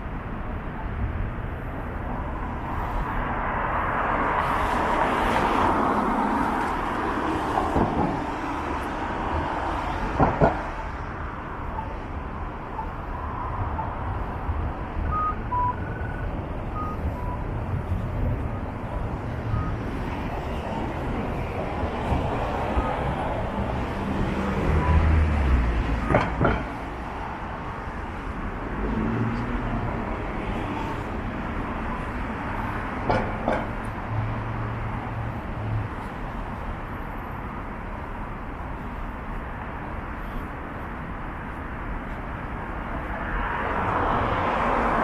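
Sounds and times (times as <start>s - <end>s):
city street traffic: 0.0s - 45.0s
sharp knocks: 10.2s - 10.8s, 26.0s - 26.8s, 33.0s - 33.8s
vehicle passing: 13.4s - 36.1s
short high beeps: 15.1s - 17.5s.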